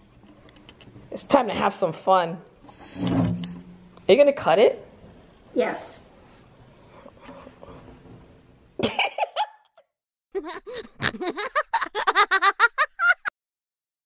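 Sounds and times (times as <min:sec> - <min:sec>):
boy laughing: 0:08.8 - 0:09.7, 0:10.3 - 0:13.3.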